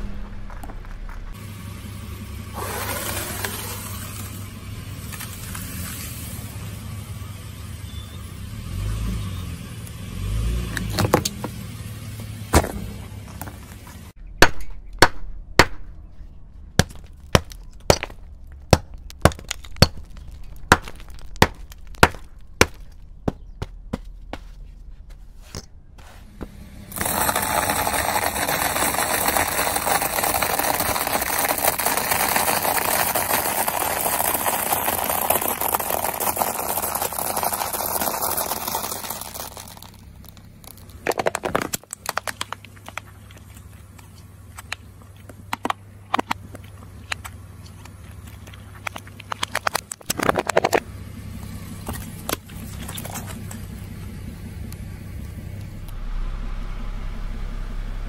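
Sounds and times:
tyre rolling with low rumble: 0:00.0 - 0:01.7
frozen foam pieces struck: 0:16.8 - 0:23.7, 0:26.4 - 0:43.4
tyre crunching dry noodles: 0:26.0 - 0:44.2
frozen foam cracking: 0:26.9 - 0:45.4.

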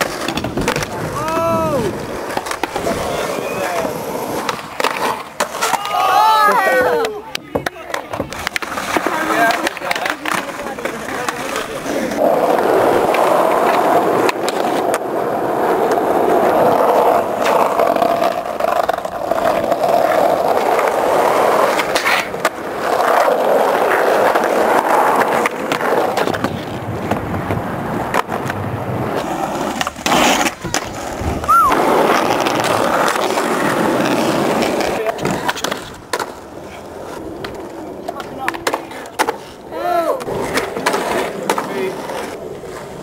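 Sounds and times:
skateboard popping and landing: 0:00.0 - 0:43.0
skateboard wheels rolling on tarmac: 0:00.0 - 0:43.0.

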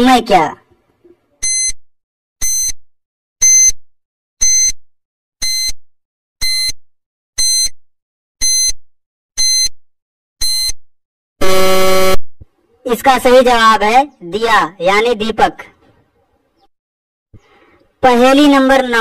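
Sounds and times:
low buzzer: 0:01.4 - 0:01.8, 0:02.4 - 0:02.8, 0:03.4 - 0:03.8, 0:04.4 - 0:04.8, 0:05.4 - 0:05.8, 0:06.4 - 0:06.8, 0:07.4 - 0:07.8, 0:08.4 - 0:08.8, 0:09.4 - 0:09.8, 0:10.4 - 0:10.8, 0:11.4 - 0:12.2
short high-pitched beeps: 0:01.4 - 0:01.8, 0:02.4 - 0:02.8, 0:03.4 - 0:03.8, 0:04.4 - 0:04.8, 0:05.4 - 0:05.8, 0:06.4 - 0:06.8, 0:07.4 - 0:07.8, 0:08.4 - 0:08.8, 0:09.4 - 0:09.8, 0:10.4 - 0:10.8.

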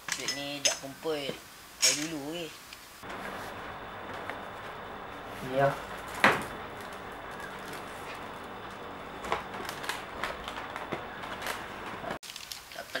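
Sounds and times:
steady background noise: 0:00.0 - 0:12.5
paper crackling and rustling: 0:03.0 - 0:12.8.

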